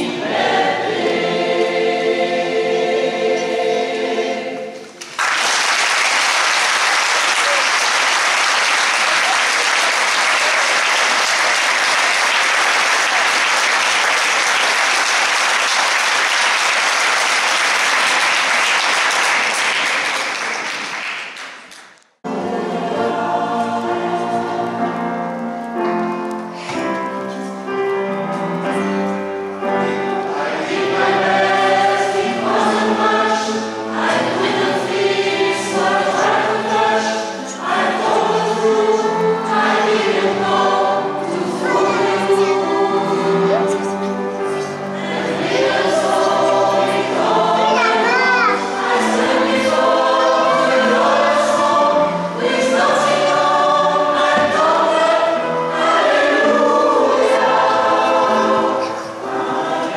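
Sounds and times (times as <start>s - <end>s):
mixed choir singing: 0.0s - 21.0s, 22.3s - 25.3s, 29.6s - 59.9s
audience applauding: 4.9s - 22.0s.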